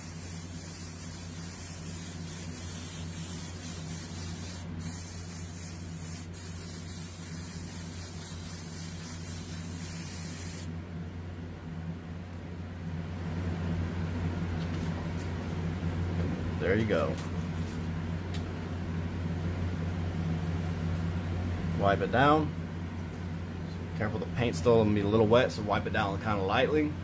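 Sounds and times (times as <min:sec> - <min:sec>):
airbrush hissing: 0:00.0 - 0:10.7.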